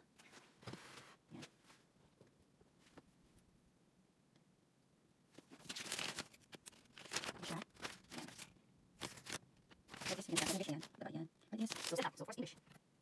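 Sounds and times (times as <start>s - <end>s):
paper leaflet rustling: 5.3s - 11.0s, 11.6s - 12.3s.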